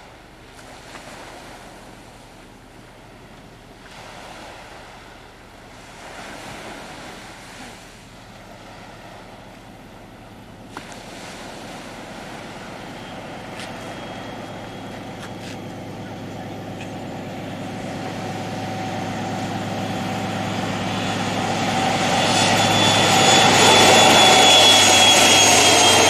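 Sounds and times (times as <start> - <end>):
surf washing on shore: 0.0 - 26.0
diesel train engine hum: 8.1 - 26.0.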